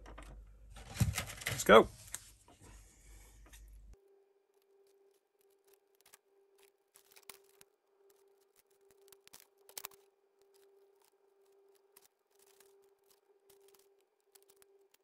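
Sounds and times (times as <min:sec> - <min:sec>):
scissors cutting plastic: 0:04.8 - 0:15.0.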